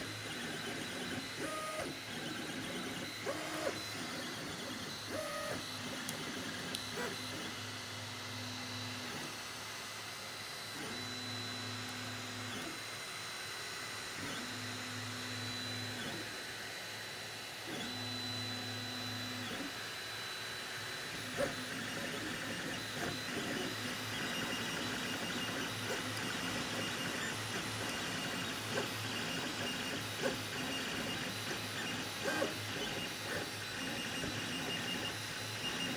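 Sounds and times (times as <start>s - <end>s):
printer whirring with clicks: 0.0s - 9.4s, 10.6s - 13.1s, 14.2s - 16.5s, 17.6s - 35.9s.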